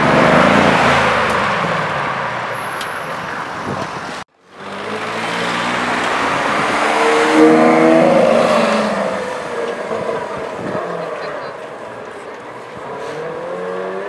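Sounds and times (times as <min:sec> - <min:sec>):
car engine accelerating: 0:04.4 - 0:14.0.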